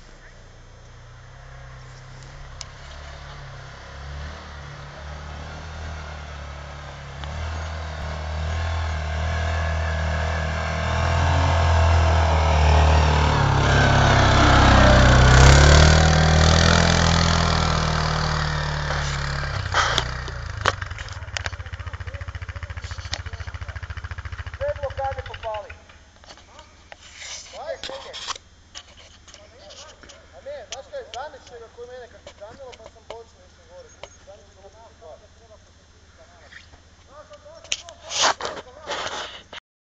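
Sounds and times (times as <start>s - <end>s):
quad bike engine under throttle: 0.0s - 26.6s.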